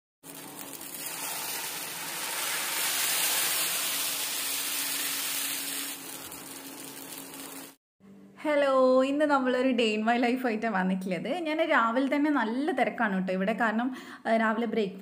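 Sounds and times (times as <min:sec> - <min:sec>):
batter sizzling in a pan: 0:00.2 - 0:07.8.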